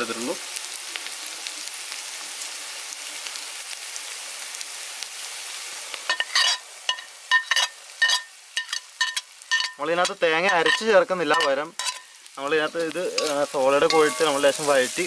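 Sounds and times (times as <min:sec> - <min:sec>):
onions sizzling in a pan: 0:00.0 - 0:15.0
ladle scraping a pan: 0:06.1 - 0:15.0.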